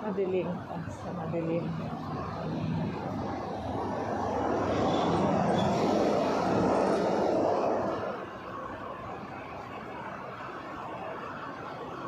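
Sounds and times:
vehicle passing by: 1.6s - 8.3s.

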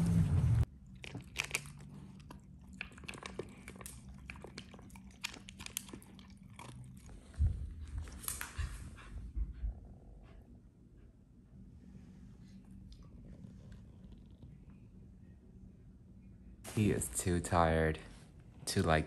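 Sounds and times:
dog crunching kibble: 0.7s - 7.4s.

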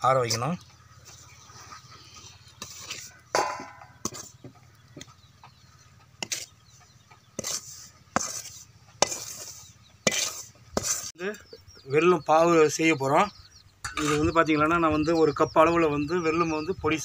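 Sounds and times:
metal spoon scraping and clinking: 7.4s - 11.1s.

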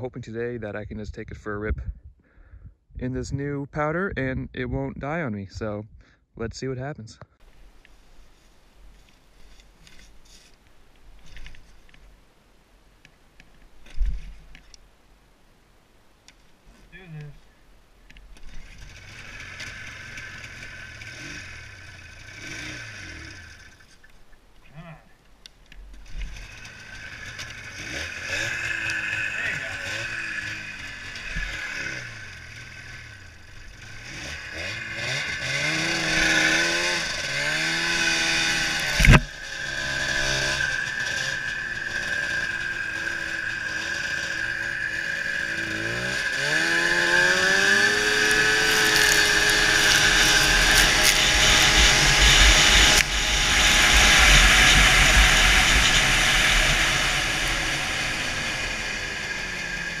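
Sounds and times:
snowmobile engine revving: 18.5s - 23.8s, 26.3s - 60.0s.

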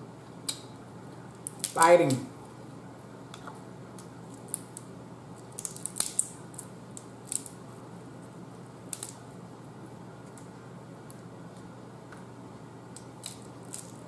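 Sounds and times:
crab shells cracking: 1.4s - 1.8s, 3.9s - 7.6s, 8.9s - 9.2s, 12.9s - 14.0s.

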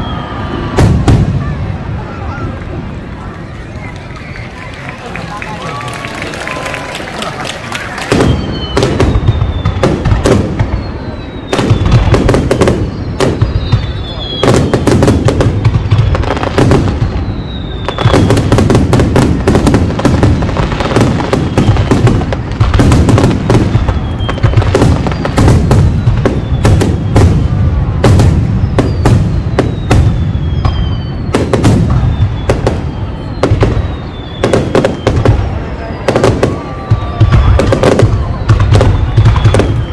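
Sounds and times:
firework whistles falling: 0.0s - 1.6s, 7.7s - 39.9s
firework booms and cracks: 0.0s - 2.8s, 7.7s - 39.9s.

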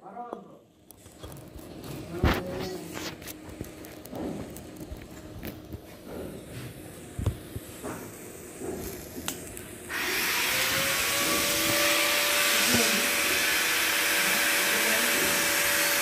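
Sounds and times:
welding arc hissing: 6.4s - 16.0s.

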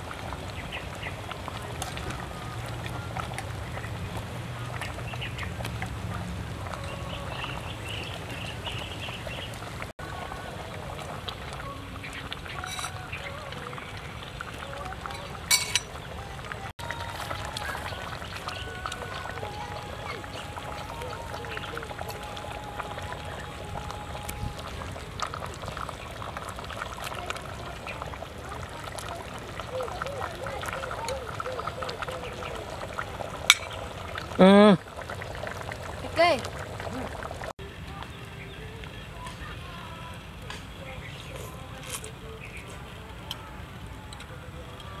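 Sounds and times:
soup pouring and splashing: 0.0s - 37.5s
metal ladle stirring soup: 12.3s - 13.1s, 15.0s - 16.1s
ladle clinking against pot: 12.6s - 13.0s, 15.1s - 16.0s, 33.5s - 33.8s.

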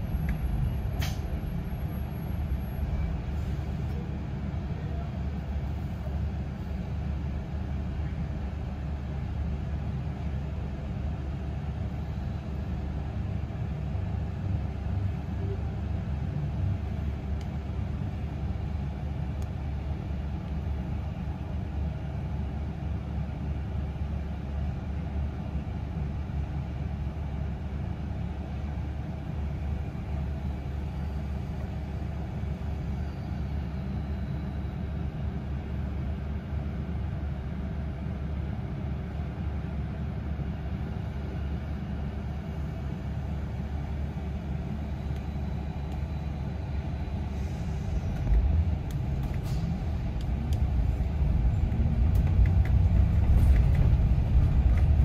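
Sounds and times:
bus engine low rumble: 0.0s - 55.0s.

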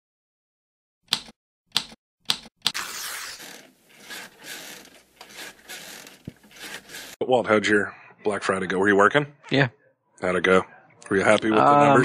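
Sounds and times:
paper tearing: 2.7s - 7.2s.

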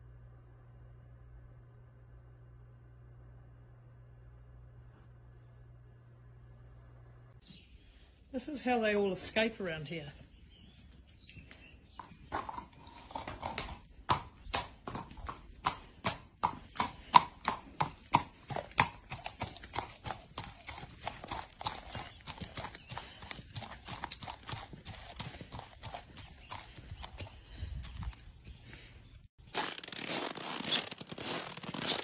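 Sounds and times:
soft hoofbeats on dirt: 8.4s - 29.3s
hooves clip-clopping on concrete: 9.9s - 28.9s.

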